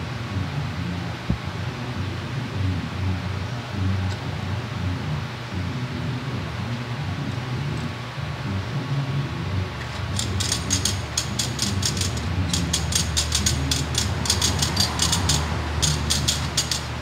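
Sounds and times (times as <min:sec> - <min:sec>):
low machine hum: 0:00.0 - 0:17.0
metal tubes clicking and rattling: 0:09.9 - 0:17.0.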